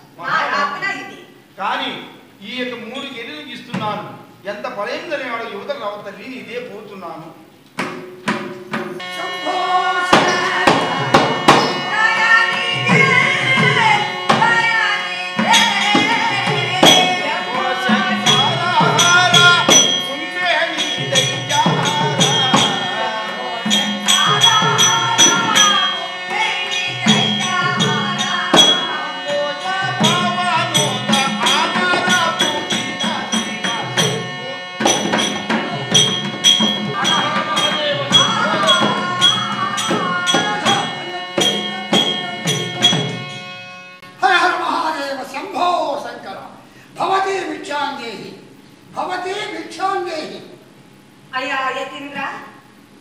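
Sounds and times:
percussion strikes clattering: 7.7 - 44.2
person singing: 9.0 - 43.2.

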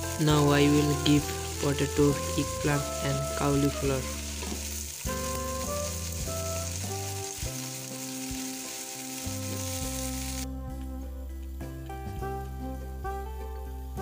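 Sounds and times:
vegetables sizzling in hot oil: 0.0 - 10.5.

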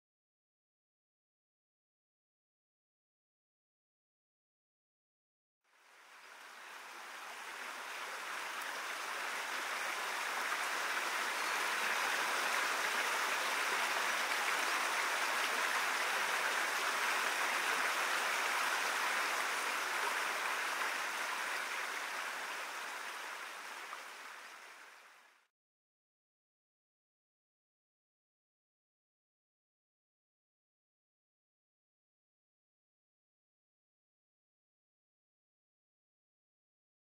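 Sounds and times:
steady rain falling: 5.7 - 25.5.

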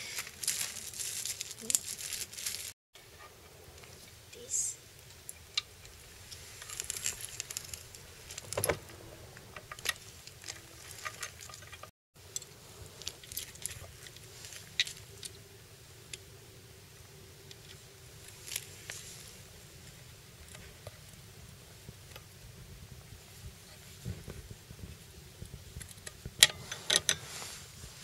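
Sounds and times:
clicks and rattles of parts: 9.6 - 15.3.

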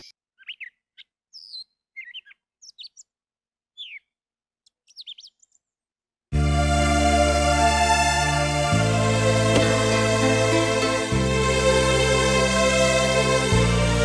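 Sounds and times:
songbirds chirping: 0.0 - 5.8
music: 6.4 - 14.0.

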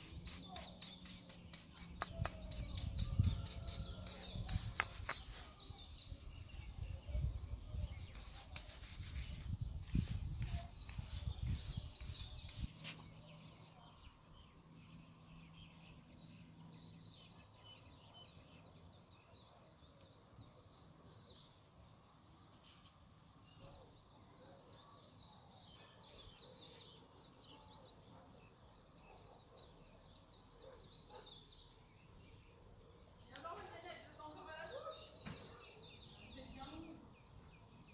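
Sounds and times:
cloth rubbing on wooden figure: 0.0 - 5.6, 8.1 - 13.0
small birds chirping: 0.0 - 37.9.

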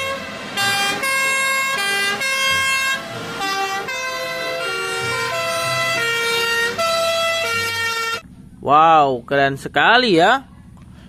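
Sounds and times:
two-tone fire engine sirens: 0.0 - 8.2.

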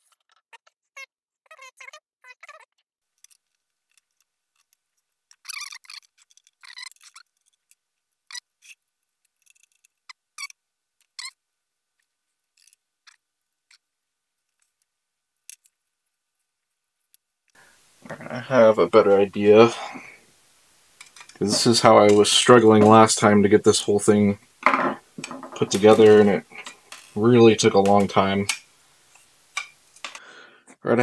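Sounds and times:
small metal parts clicking: 3.2 - 11.3, 12.0 - 13.8, 14.5 - 15.8, 25.2 - 27.2, 27.8 - 30.2
metal scraping and rattling: 21.0 - 28.6.

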